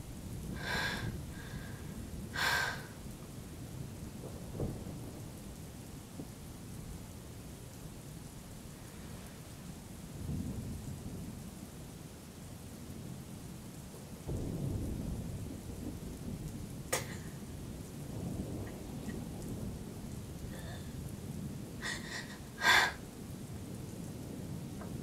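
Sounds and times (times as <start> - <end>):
low thunder rumbling: 0.0 - 7.1, 14.2 - 25.0
steady rain: 0.0 - 25.0.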